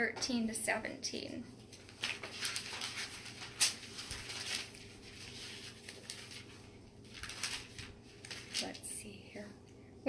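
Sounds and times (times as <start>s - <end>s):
thin pages rustling: 1.6s - 9.0s.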